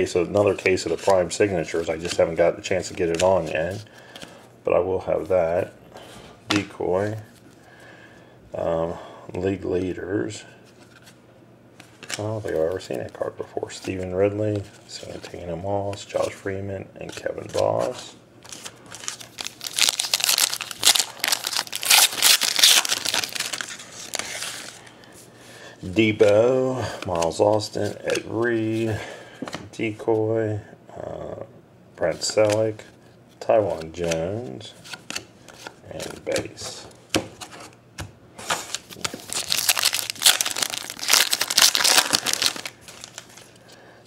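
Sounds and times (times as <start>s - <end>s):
foil wrapper crinkling: 18.5s - 24.8s, 38.6s - 43.6s.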